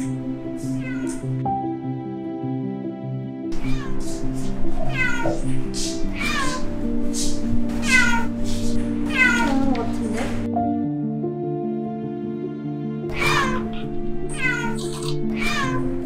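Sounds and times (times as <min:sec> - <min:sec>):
kitten meowing: 0:00.0 - 0:01.4, 0:03.6 - 0:10.5, 0:13.1 - 0:16.0
background music: 0:00.0 - 0:16.0.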